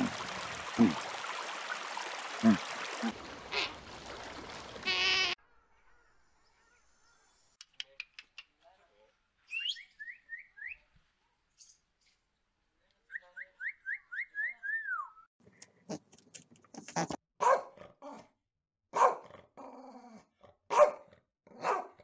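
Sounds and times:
dog barking loudly: 17.4 - 17.8, 18.9 - 19.3, 20.7 - 22.0.

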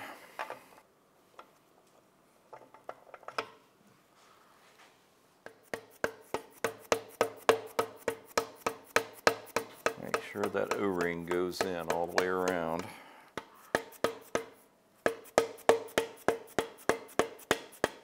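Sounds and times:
light metallic taps: 5.5 - 14.5.

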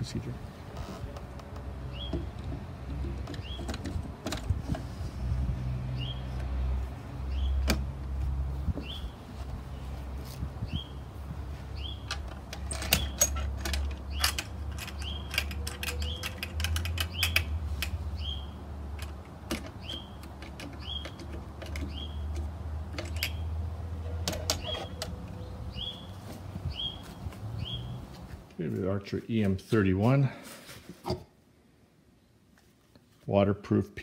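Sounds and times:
bird chirping: 1.9 - 2.3, 3.2 - 3.9, 5.9 - 6.4, 7.2 - 7.7, 8.8 - 9.9, 10.6 - 11.0, 11.7 - 12.2, 14.0 - 17.5, 18.1 - 18.6, 19.8 - 22.4, 23.0 - 28.1
equipment clicks and rattles: 12.0 - 18.0, 18.9 - 25.4.

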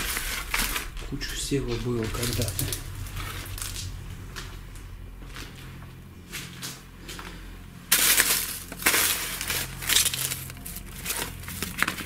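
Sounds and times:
paper and cloth rustling: 6.2 - 12.0.

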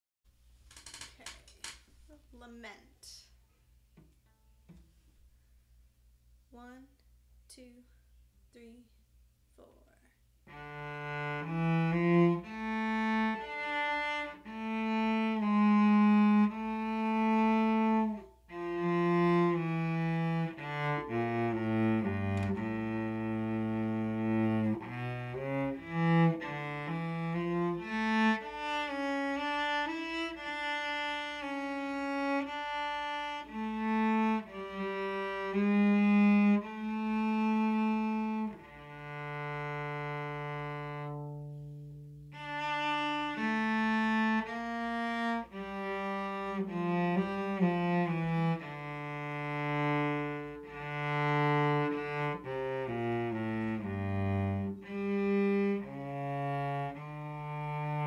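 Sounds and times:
solo cello melody: 3.9 - 5.4, 10.4 - 58.0.

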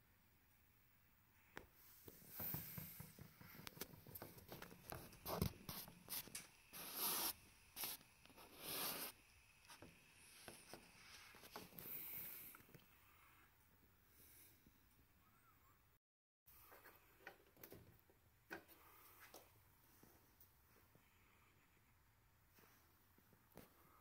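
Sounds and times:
short hissing rubs: 4.8 - 12.6.

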